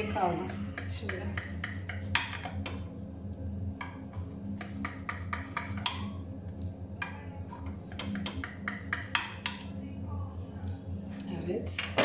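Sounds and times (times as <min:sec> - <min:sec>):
steady low hum: 0:00.0 - 0:12.0
knife tapping against glass dish: 0:00.4 - 0:02.7, 0:04.6 - 0:06.2, 0:07.9 - 0:09.7.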